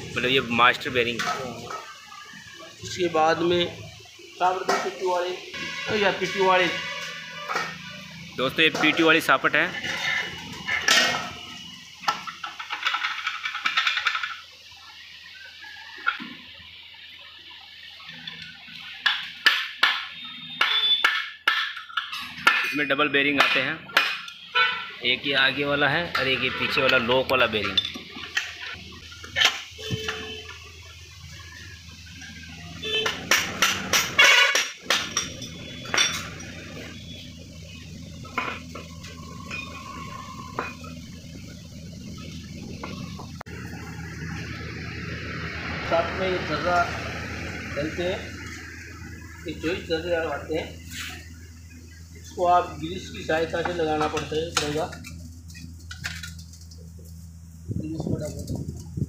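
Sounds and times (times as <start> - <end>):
steel parts clinking and rattling: 12.2 - 14.4.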